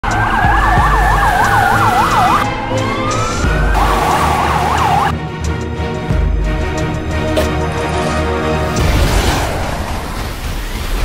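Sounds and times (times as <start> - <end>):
police siren yelp and wail: 0.0 - 5.2.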